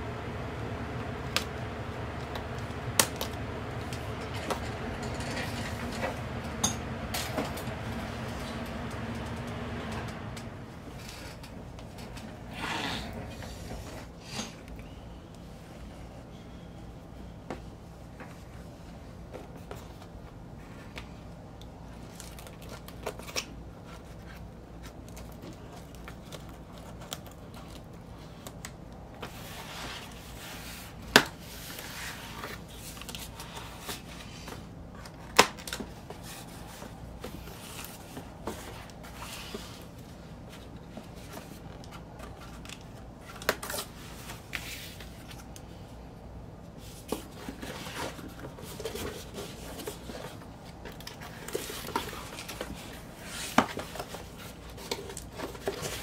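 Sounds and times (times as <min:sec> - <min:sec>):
cardboard rustling and scraping: 0:22.0 - 0:45.5, 0:46.7 - 0:56.0.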